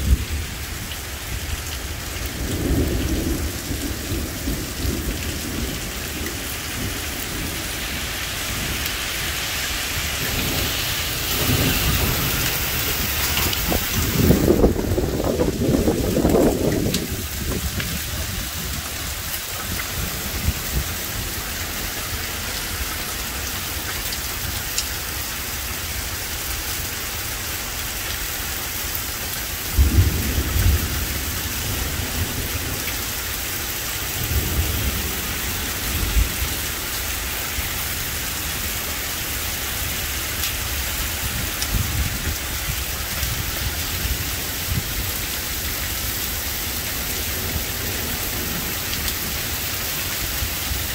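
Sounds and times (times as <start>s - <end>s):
heavy rain pouring: 0.0s - 50.9s
thunder rumbling: 2.2s - 21.9s, 29.7s - 33.0s
thunderclap: 10.2s - 18.8s.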